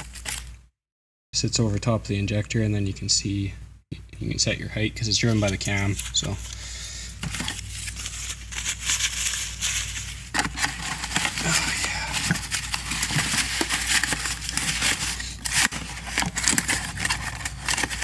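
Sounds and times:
paper crinkling: 0:00.0 - 0:00.5, 0:05.1 - 0:18.0
cardboard box handled: 0:07.2 - 0:18.0.

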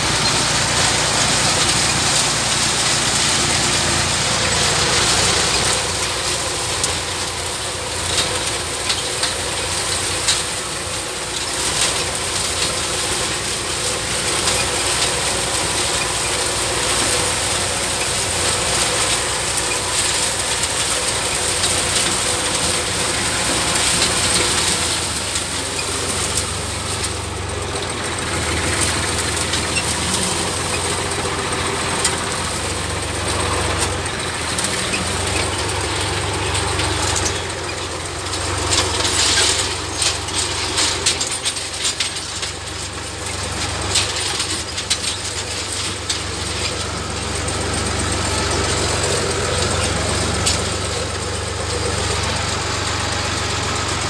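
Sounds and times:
diesel tractor engine running: 0:00.0 - 0:54.0.

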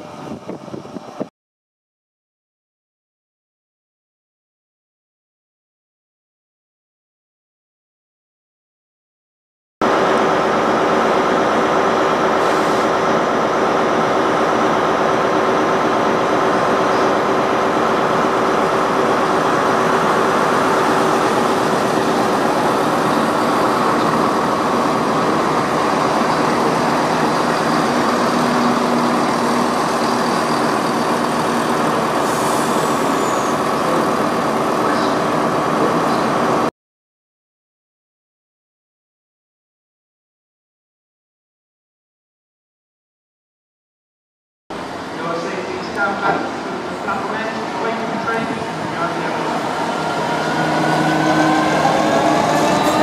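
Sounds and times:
diesel train engine hum: 0:00.0 - 0:01.3, 0:09.8 - 0:36.7, 0:44.7 - 0:53.0
wheels rumbling on track: 0:09.8 - 0:36.7, 0:44.8 - 0:53.0.

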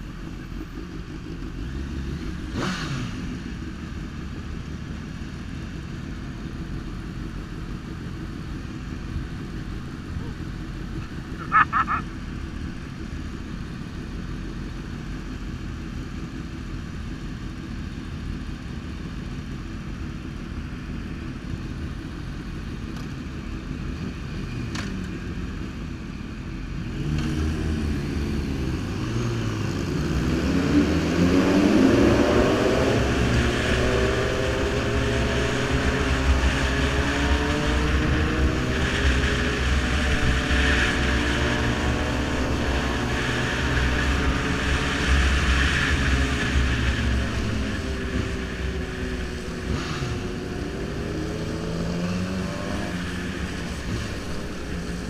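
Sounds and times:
motorcycle engine accelerating: 0:00.0 - 0:04.9, 0:07.3 - 0:14.8, 0:26.7 - 0:55.0.

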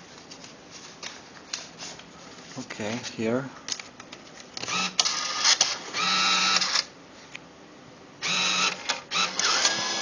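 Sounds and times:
bill validator motor whirring: 0:04.6 - 0:06.9, 0:08.2 - 0:10.0.

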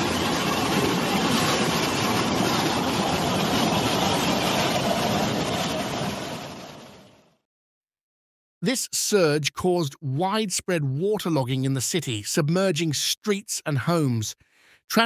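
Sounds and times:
rushing floodwater: 0:00.0 - 0:06.6.

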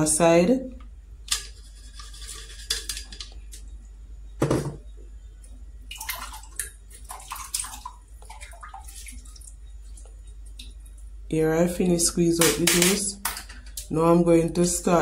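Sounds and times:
liquid splashing into bowl: 0:05.9 - 0:10.8.

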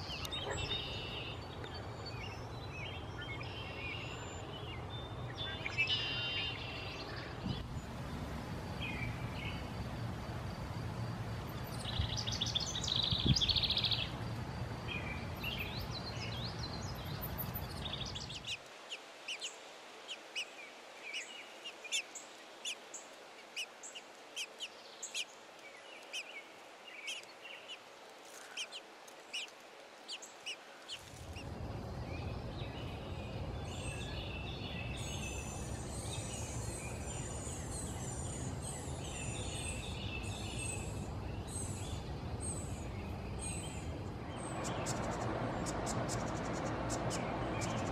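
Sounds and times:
songbirds chirping and singing: 0:00.0 - 0:07.8, 0:11.5 - 0:14.2, 0:30.1 - 0:47.9.

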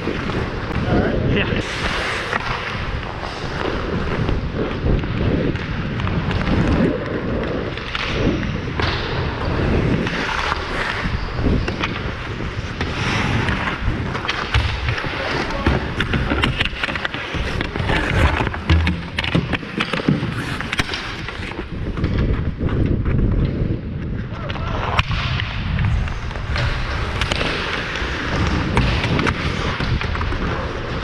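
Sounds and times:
skate blades scraping ice: 0:00.0 - 0:31.0
hockey stick clicks and knocks: 0:12.8 - 0:31.0.

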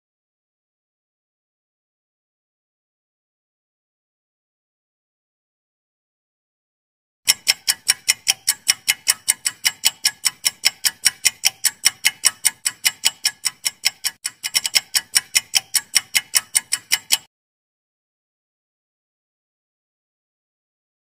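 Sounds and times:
clock-like ticking: 0:07.2 - 0:17.3.

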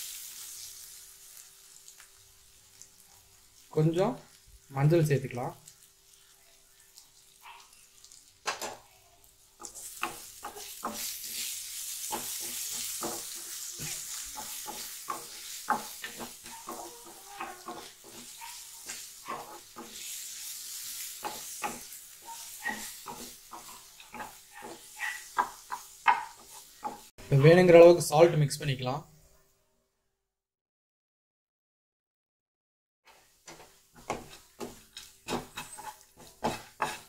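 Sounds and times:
food sizzling in hot oil: 0:00.0 - 0:27.2, 0:33.1 - 0:37.0
spatula knocking and scraping pan: 0:09.6 - 0:27.1, 0:33.1 - 0:37.0.

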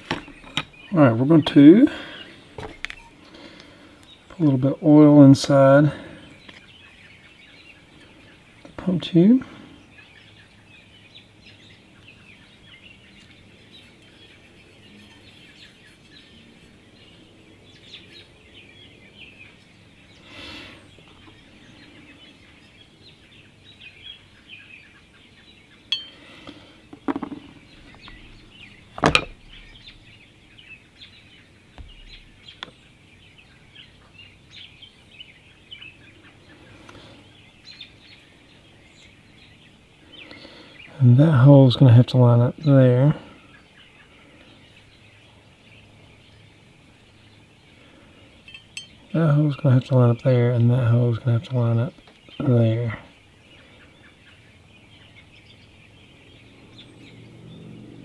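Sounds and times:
faint birdsong: 0:00.0 - 0:58.0
metal parts clinking: 0:27.1 - 0:29.8.

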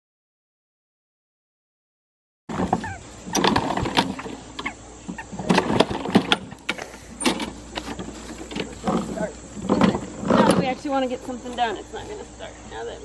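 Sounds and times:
recoil starter cord pulls: 0:02.5 - 0:04.7
mower engine turning over: 0:02.5 - 0:13.0.

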